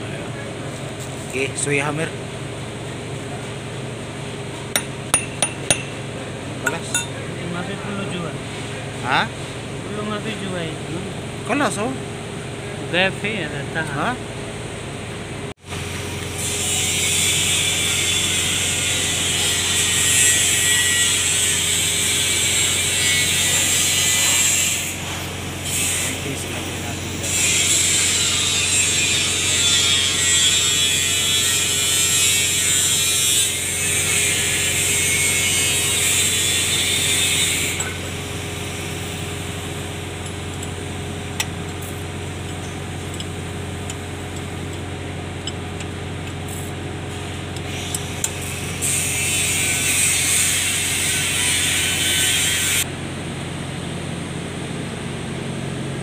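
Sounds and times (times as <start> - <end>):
steady low hum: 4.0 - 7.8.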